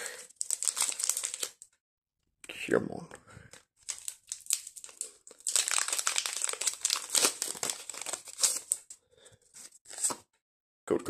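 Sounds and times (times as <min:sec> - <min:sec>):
foil wrapper crinkling: 0:00.0 - 0:01.6, 0:03.9 - 0:08.8.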